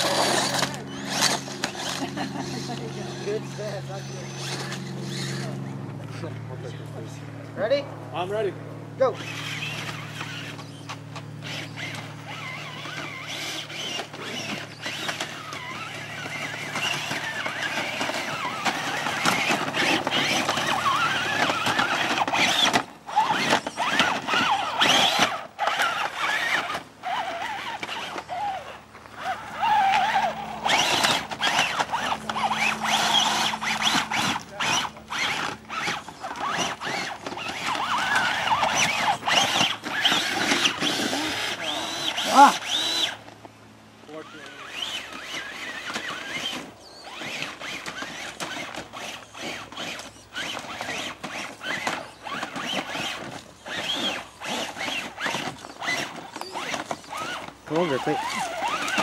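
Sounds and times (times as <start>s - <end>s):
electric motors whining: 0.0s - 59.0s.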